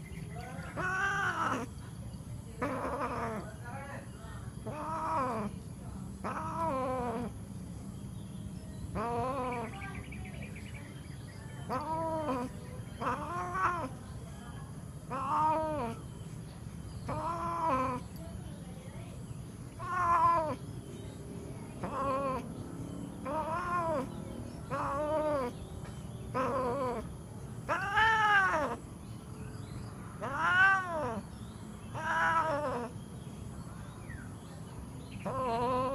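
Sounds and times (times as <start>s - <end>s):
cat yowling: 0.7s - 1.8s, 2.6s - 3.5s, 4.6s - 5.6s, 6.2s - 7.4s, 8.9s - 9.8s, 11.7s - 14.0s, 15.0s - 16.1s, 17.0s - 18.2s, 19.7s - 20.8s, 21.7s - 25.6s, 26.3s - 28.9s, 30.2s - 33.0s, 35.2s - 35.9s.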